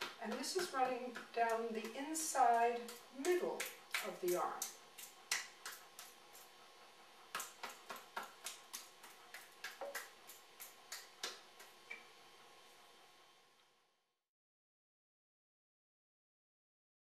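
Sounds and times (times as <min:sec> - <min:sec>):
fingertips tapping on skin: 0:00.0 - 0:06.6, 0:07.3 - 0:12.1.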